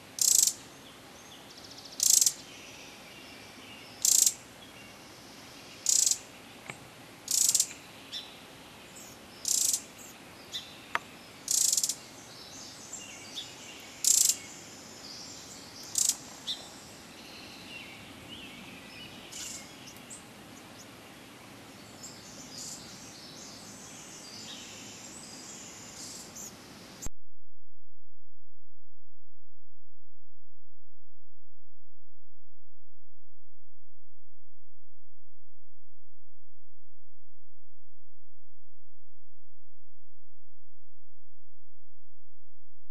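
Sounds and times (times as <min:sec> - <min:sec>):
wren calls: 0:00.2 - 0:00.6, 0:01.6 - 0:02.5, 0:03.9 - 0:04.4, 0:05.7 - 0:06.3, 0:07.3 - 0:20.9, 0:22.0 - 0:26.5.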